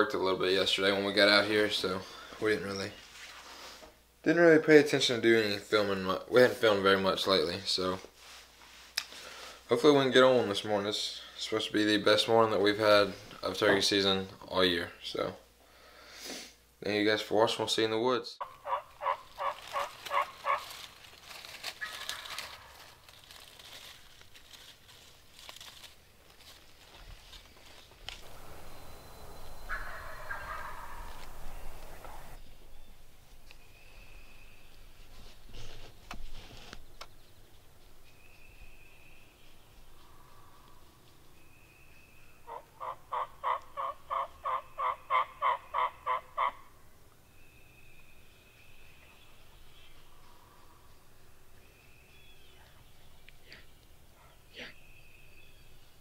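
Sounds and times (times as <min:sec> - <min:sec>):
turkey calls: 0:18.4 - 0:21.0, 0:21.6 - 0:23.0, 0:28.2 - 0:34.8, 0:42.4 - 0:46.8
dry leaves rustling: 0:18.4 - 0:36.5.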